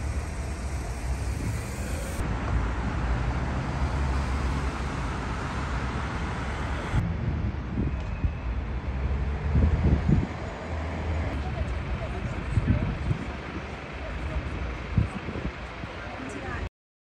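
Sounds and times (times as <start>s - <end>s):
street traffic rumble: 0.0s - 16.7s
wind buffeting microphone: 4.6s - 10.6s, 11.3s - 16.0s.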